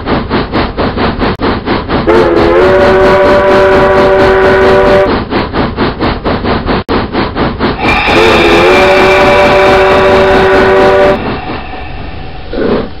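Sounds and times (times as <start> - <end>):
locomotive chuffing: 0.0 - 13.0
steam chime whistle: 7.8 - 12.6.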